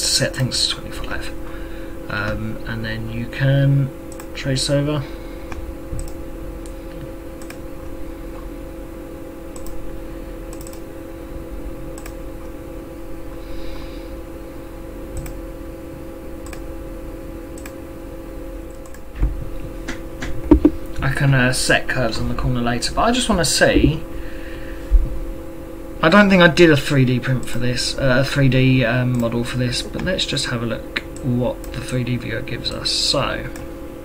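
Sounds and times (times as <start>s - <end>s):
electrical hum: 0.0s - 34.0s
computer mouse clicks: 4.1s - 4.3s, 5.5s - 7.6s, 9.5s - 9.8s, 10.5s - 10.8s, 12.0s - 12.2s, 15.2s - 15.4s, 16.4s - 16.6s, 18.7s - 19.1s.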